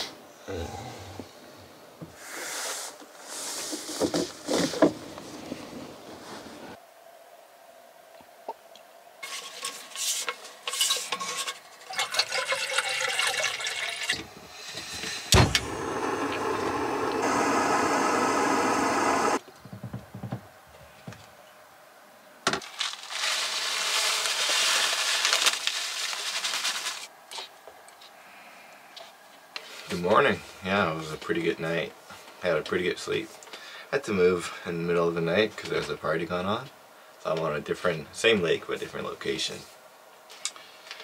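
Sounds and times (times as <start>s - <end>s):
water pouring into cup: 11.9s - 14.2s
gas burner hissing: 14.3s - 19.4s.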